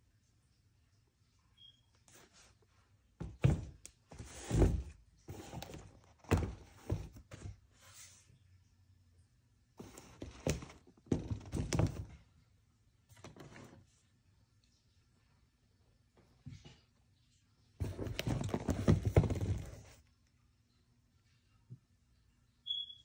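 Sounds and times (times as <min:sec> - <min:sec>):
rustling: 0:17.8 - 0:20.0.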